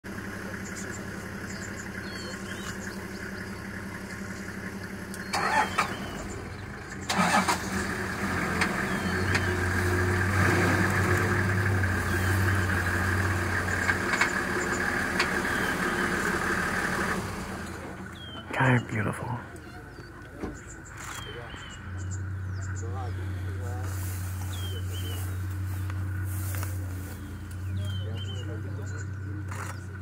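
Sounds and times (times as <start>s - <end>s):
vehicle engine idling: 0.0s - 30.0s
loud engine bursts: 4.6s - 19.2s.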